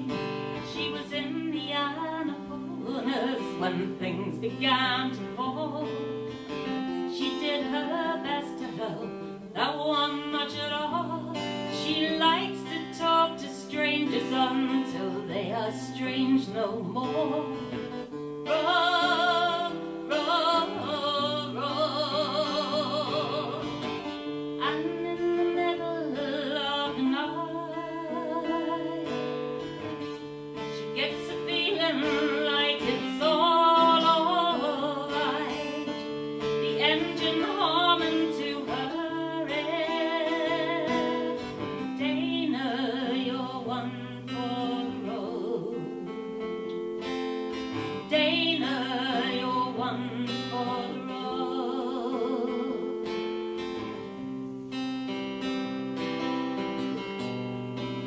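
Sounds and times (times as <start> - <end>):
acoustic guitar playing chords: 0.0 - 58.0
guitar melody with vibrato: 0.0 - 58.0.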